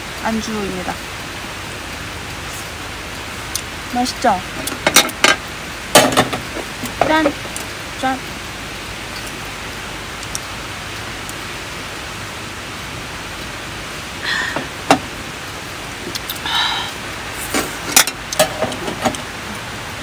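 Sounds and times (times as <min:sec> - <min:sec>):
steady hiss: 0:00.0 - 0:20.0
small knocks: 0:06.0 - 0:07.6
breathy exhale: 0:14.2 - 0:14.8, 0:16.4 - 0:17.0.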